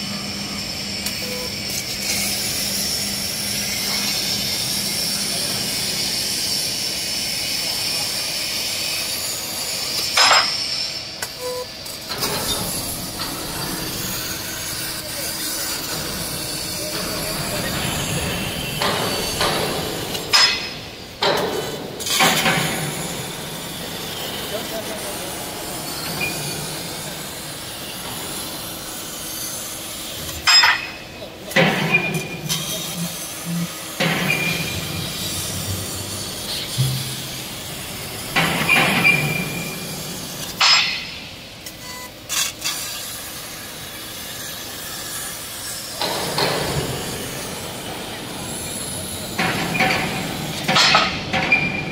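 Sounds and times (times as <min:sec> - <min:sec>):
steady machine noise: 0:00.0 - 0:42.3
sharp metallic knocks and clanks: 0:09.9 - 0:11.3, 0:12.0 - 0:24.3, 0:30.3 - 0:41.4, 0:46.0 - 0:47.8, 0:49.0 - 0:51.9.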